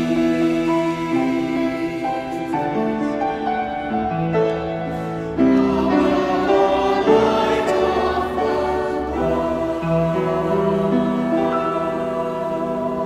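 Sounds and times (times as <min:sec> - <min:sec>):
church choir singing: 0:00.0 - 0:13.0.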